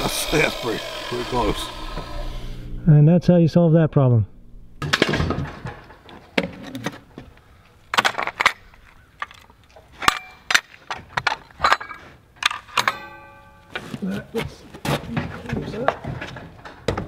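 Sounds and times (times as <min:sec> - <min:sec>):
tools and lumber knocking: 0:04.8 - 0:17.0.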